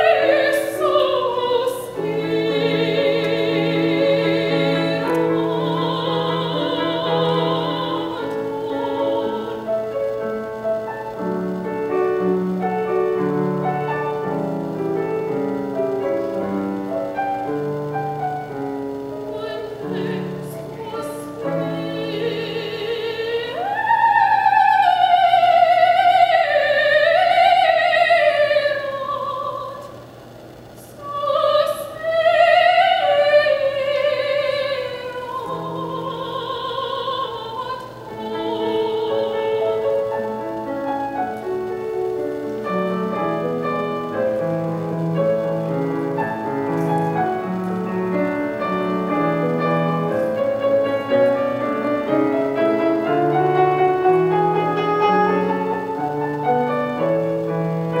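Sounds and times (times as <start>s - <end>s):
soprano singing with vibrato: 0.0s - 15.3s, 16.0s - 30.1s, 30.8s - 58.0s
grand piano: 0.0s - 58.0s.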